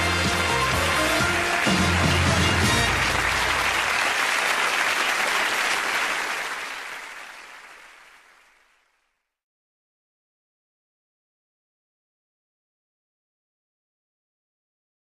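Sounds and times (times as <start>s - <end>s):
theme music held note: 0.0s - 4.2s
audience applauding: 0.0s - 9.1s.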